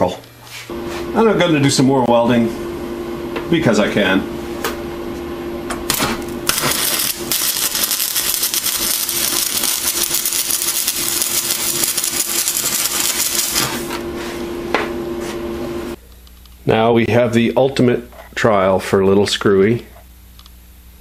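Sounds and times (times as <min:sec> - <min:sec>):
welding arc crackling: 0:05.9 - 0:14.0.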